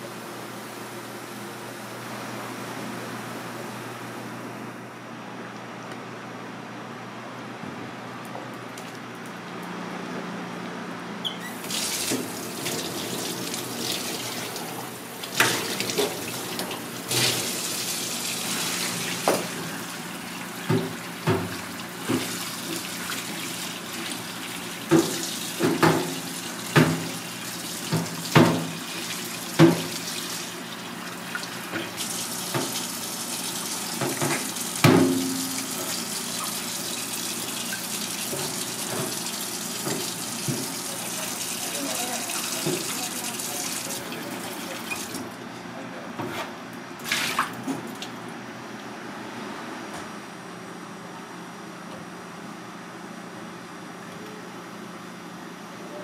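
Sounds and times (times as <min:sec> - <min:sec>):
tap water running: 0:11.5 - 0:45.3.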